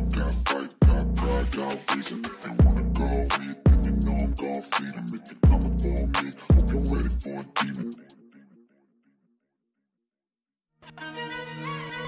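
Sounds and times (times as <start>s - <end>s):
deep bass hits: 0.0s - 1.6s, 2.6s - 4.4s, 5.4s - 7.2s
hip-hop beat: 0.0s - 8.2s.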